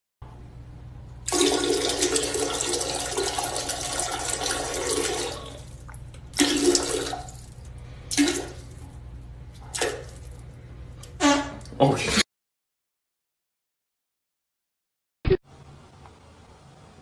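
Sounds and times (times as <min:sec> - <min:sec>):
toilet flushing: 0:01.2 - 0:08.8.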